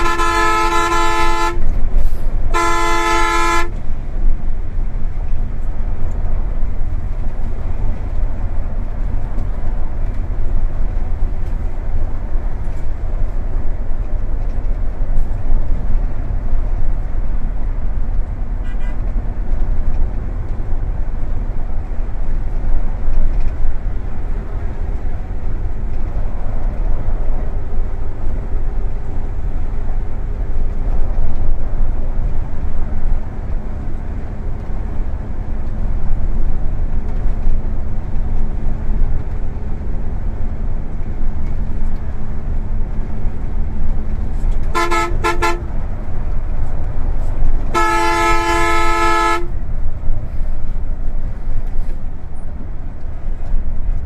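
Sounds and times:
vehicle horn toots: 0.0 - 1.7, 2.5 - 3.8, 44.7 - 45.7, 47.7 - 49.5
bus engine and road rumble: 0.0 - 54.0.

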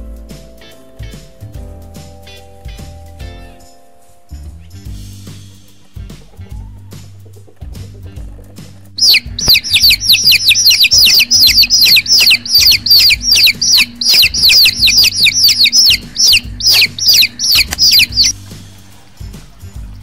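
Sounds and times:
background music low notes: 0.0 - 20.0
baby chicks peeping: 5.4 - 20.0.

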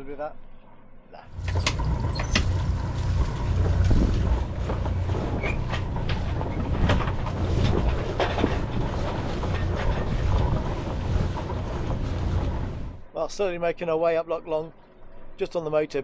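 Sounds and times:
boat engine running: 1.3 - 13.1
wind rumble on microphone: 1.3 - 13.1.

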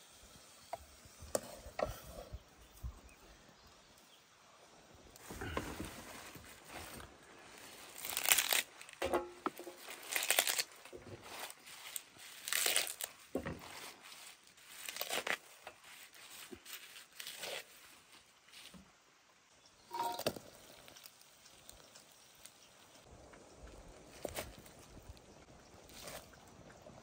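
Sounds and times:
tearing and crinkling rustles: 5.2 - 18.8.

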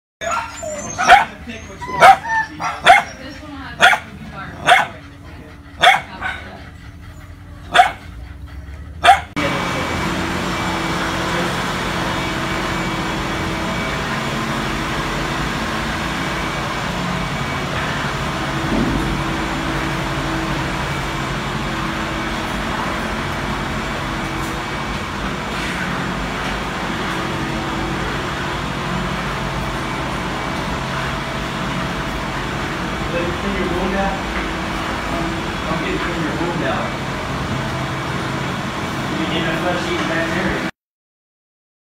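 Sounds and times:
ventilation machinery drone: 0.2 - 40.7
low hum: 3.3 - 39.1.

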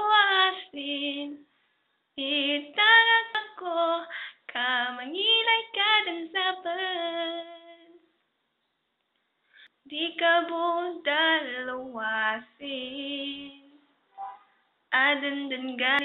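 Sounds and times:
woman singing unaccompanied: 0.0 - 1.4, 2.2 - 8.0, 9.9 - 13.8, 14.9 - 16.0.

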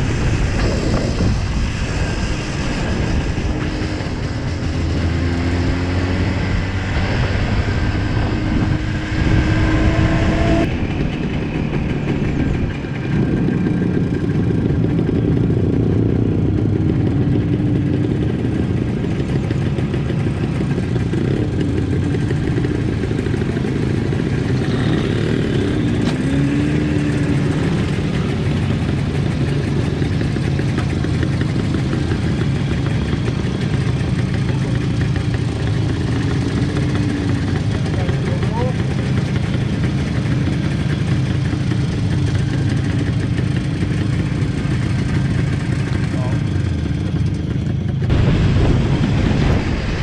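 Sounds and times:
motorcycle engines running: 0.0 - 50.0
motorcycle engines idling: 10.6 - 48.9.

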